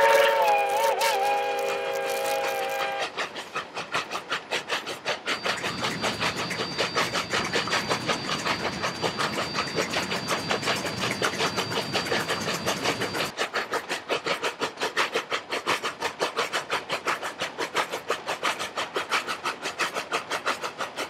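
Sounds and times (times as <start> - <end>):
steam whistle: 0.0 - 3.2, 5.4 - 13.3
steam locomotive exhaust chuffs: 0.0 - 21.0
steady high whine: 5.3 - 13.3.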